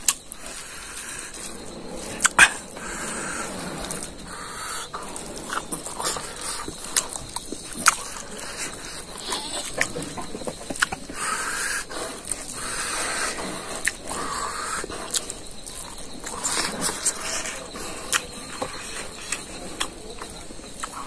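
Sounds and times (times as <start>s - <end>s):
man chewing with mouth open: 0.0s - 21.0s.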